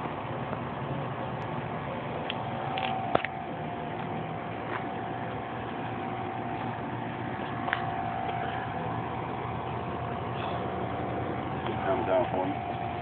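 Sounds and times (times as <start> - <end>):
machine hum with whine: 0.0 - 13.0.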